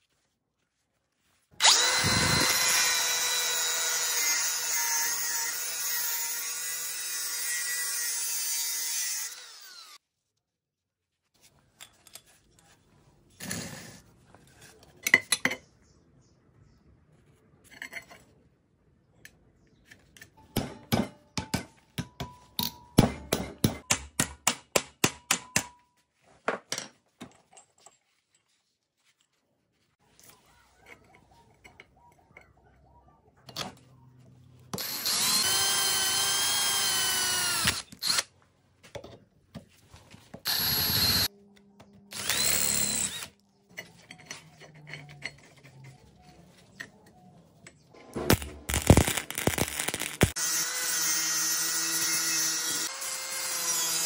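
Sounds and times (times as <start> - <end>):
electric drill drilling metal: 1.6 - 10.0, 34.8 - 38.3, 40.5 - 41.3, 42.1 - 43.3, 48.3 - 54.0.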